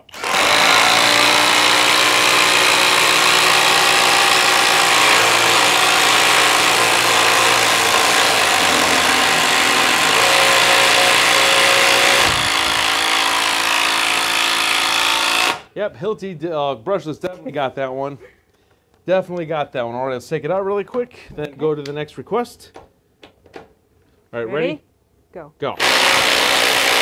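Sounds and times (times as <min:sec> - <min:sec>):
impact drivers hammering: 0:04.1 - 0:15.6.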